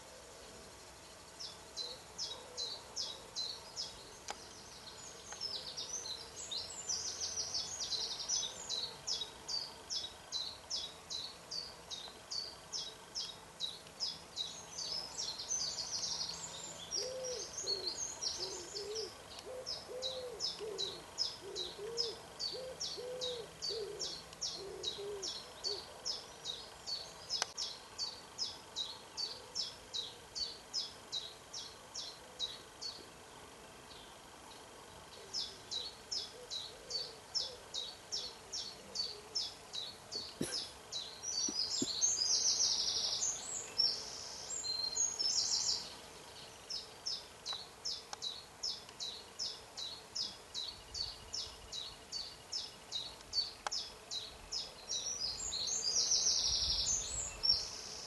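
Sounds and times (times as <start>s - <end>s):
low cooing bird call: 1.4s - 13.3s, 14.4s - 28.2s, 28.8s - 33.2s, 35.1s - 46.5s.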